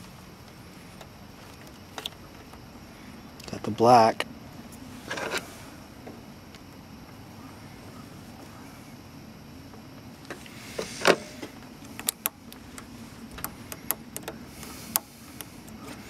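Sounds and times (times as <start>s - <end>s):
wire connectors clicking: 11.8s - 16.0s.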